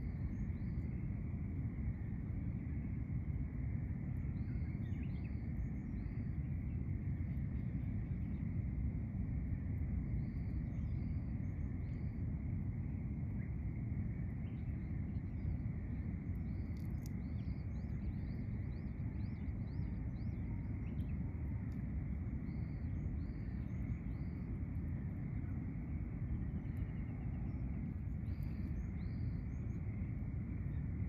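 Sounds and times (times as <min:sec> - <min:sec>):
low background rumble: 0:00.0 - 0:31.0
small birds chirping: 0:16.2 - 0:24.5, 0:26.4 - 0:30.0.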